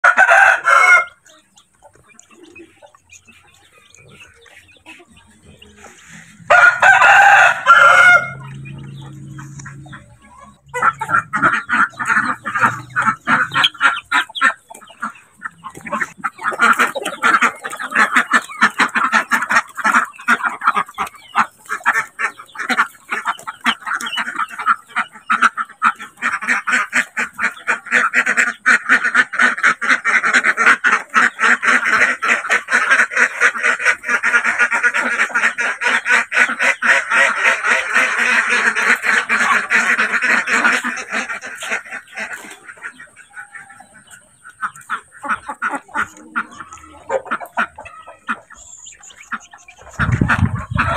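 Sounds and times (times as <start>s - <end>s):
rooster crowing: 0.0s - 1.2s, 6.4s - 8.6s
chickens clucking: 0.0s - 50.9s
ducks quacking: 0.0s - 50.9s.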